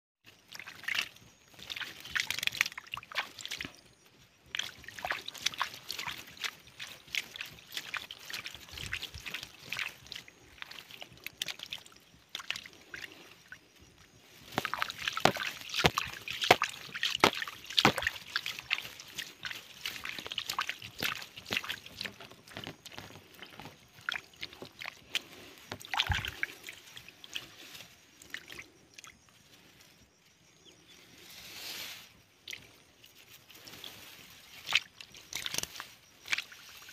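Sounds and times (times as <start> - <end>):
muddy water sloshing and squelching: 0.3 - 31.2, 32.0 - 36.9
wet splashes and slaps: 0.5 - 3.8, 4.5 - 13.1, 14.4 - 27.5, 32.4 - 33.2, 34.5 - 36.9.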